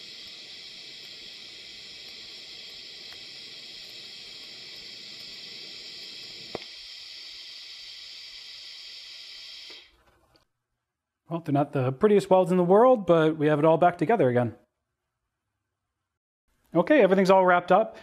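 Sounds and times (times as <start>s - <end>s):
electric arc welding hiss: 0.0s - 10.0s.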